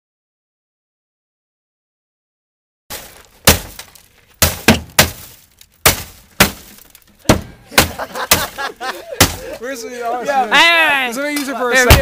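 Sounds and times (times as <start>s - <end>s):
glass breaking: 2.9s - 9.5s.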